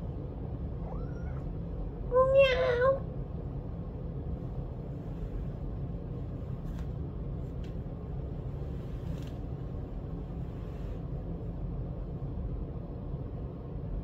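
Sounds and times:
steady low rumble: 0.0 - 14.0
soft rustles: 4.4 - 11.6.

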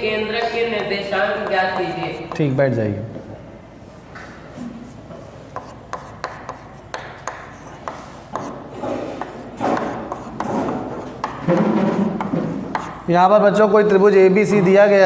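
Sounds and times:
chalk writing on chalkboard: 0.1 - 2.5, 3.9 - 13.1.

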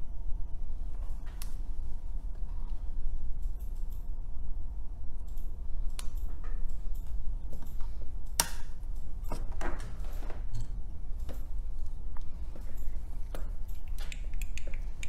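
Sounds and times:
steady low hum: 0.0 - 15.0.

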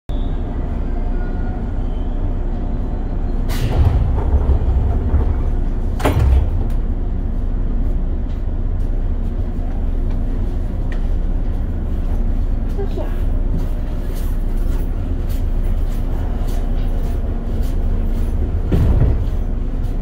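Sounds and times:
train low hum: 0.1 - 20.0
pneumatic train doors closing: 3.2 - 7.0
doors shutting with knock: 3.5 - 6.9.

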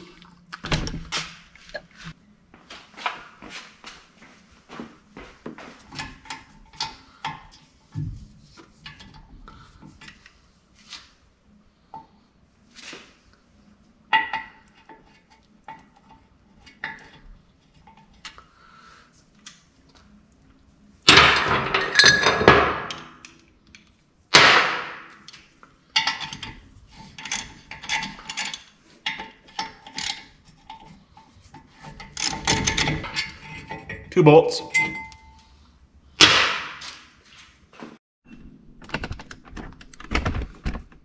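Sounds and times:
metal tools clattering and scraping: 21.1 - 23.3, 25.4 - 35.6.

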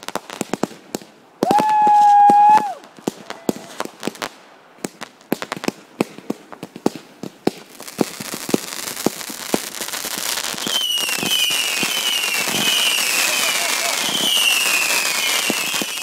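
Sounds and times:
fireworks popping and banging: 0.0 - 16.0
firework whistles: 10.4 - 16.0.

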